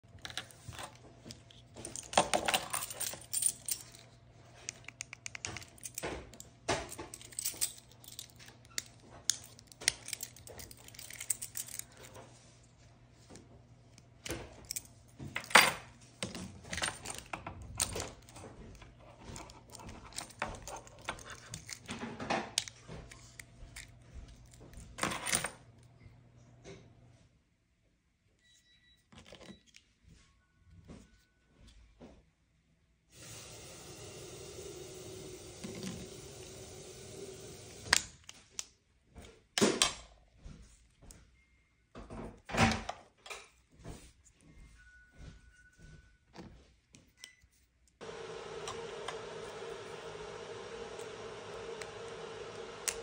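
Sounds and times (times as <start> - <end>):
keys and split ring jangling: 1.9 - 4.1, 7.1 - 12.2.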